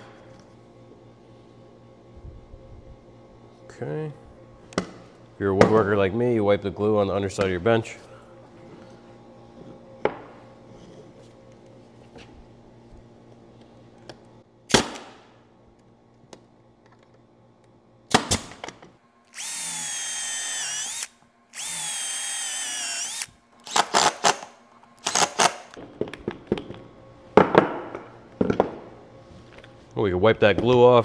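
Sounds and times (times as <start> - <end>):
nail gun firing: 18.1 - 18.6
cordless drill boring wood: 19.3 - 24.4.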